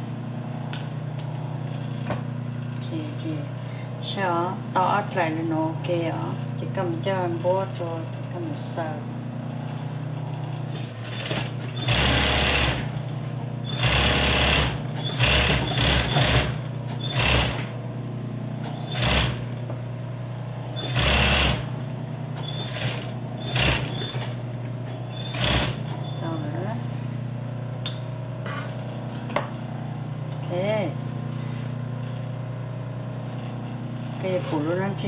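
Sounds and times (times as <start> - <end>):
steady low hum: 0.0 - 35.0
industrial sewing machine stitching: 9.6 - 17.8, 18.6 - 19.6, 20.7 - 26.3.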